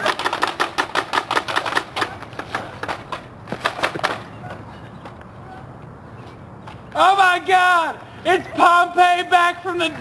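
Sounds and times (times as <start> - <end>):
toy guns firing rapid clicks: 0.0 - 2.1.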